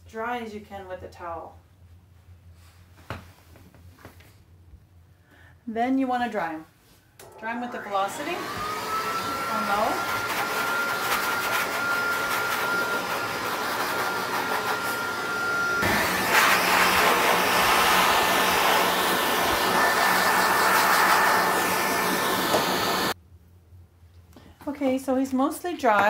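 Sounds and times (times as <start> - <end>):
dog dryer blowing air with whine: 7.2 - 23.2.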